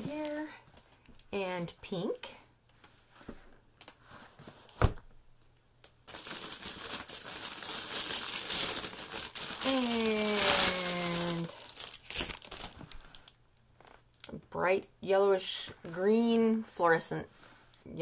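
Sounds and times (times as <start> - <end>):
thump: 4.8 - 5.0
plastic wrapping crinkling: 6.0 - 14.3.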